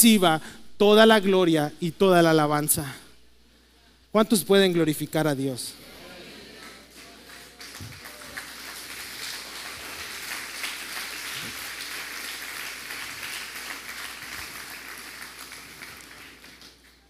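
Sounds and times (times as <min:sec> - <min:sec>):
congregation applauding: 0:06.0 - 0:17.0.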